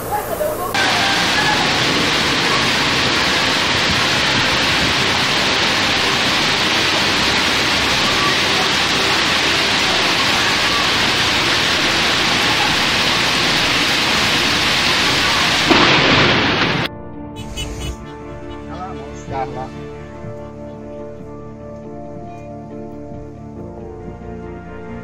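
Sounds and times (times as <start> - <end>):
torrential rain: 0.0 - 16.9
floodwater rushing: 0.0 - 18.5.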